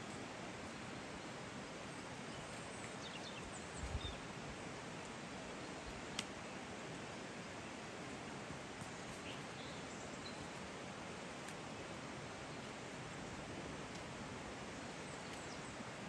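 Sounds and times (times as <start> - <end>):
forest ambience: 0.0 - 16.0
faint bird chirps: 8.9 - 10.6.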